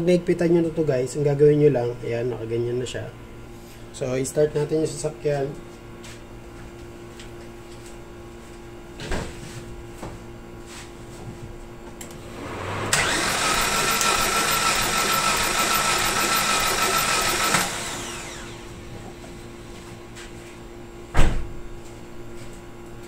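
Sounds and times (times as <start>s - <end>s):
engine cranking by starter: 12.4s - 18.6s
sharp thump: 21.1s - 21.5s.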